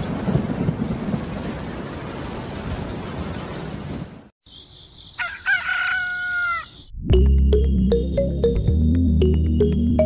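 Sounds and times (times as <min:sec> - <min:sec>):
rain-like hiss: 0:00.0 - 0:04.3
loud bird call: 0:04.6 - 0:06.9.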